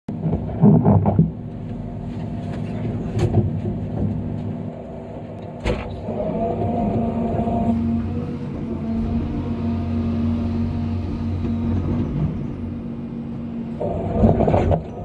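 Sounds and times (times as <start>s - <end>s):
knocks and clunks: 0.1s - 4.6s
excavator diesel engine running: 1.3s - 15.0s.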